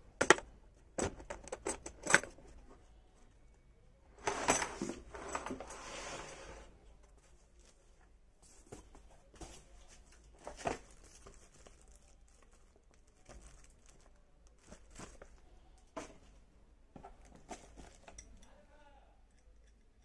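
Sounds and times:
tools knocking and clicking: 0.2s - 2.4s
plastic wrapping crinkling: 10.0s - 15.5s.

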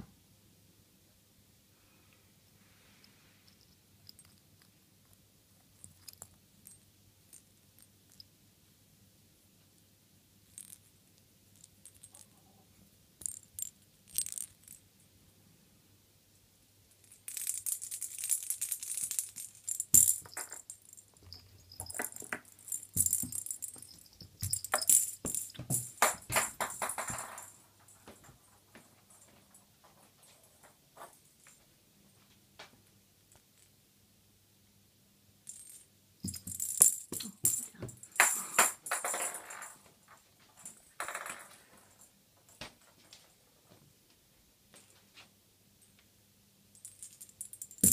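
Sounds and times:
small bells jingling: 17.0s - 29.4s, 35.5s - 39.8s, 46.8s - 47.9s.

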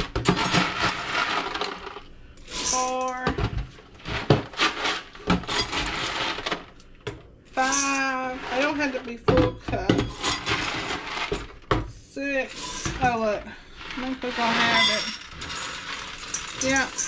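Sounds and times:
dry beans rattling into glass jars: 0.0s - 3.4s, 4.0s - 6.8s, 7.6s - 9.3s, 9.9s - 17.0s.

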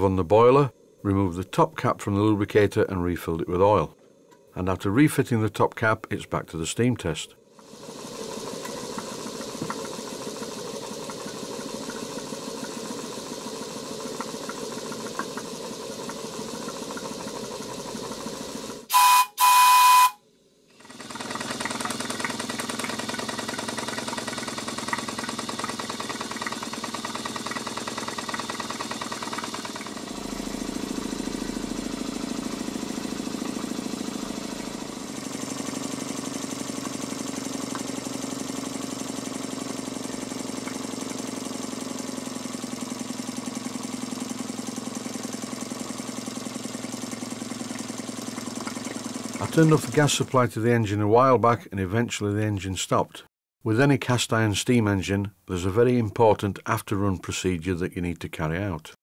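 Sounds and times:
model steam engine running: 7.6s - 20.2s, 20.8s - 50.4s
loud whistle-like blasts: 18.9s - 20.2s.

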